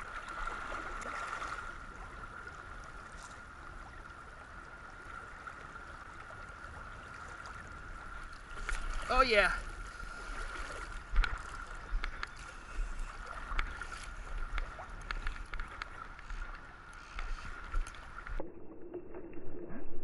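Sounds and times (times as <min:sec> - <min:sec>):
river water running: 0:00.0 - 0:18.4
small clicks: 0:14.5 - 0:18.4.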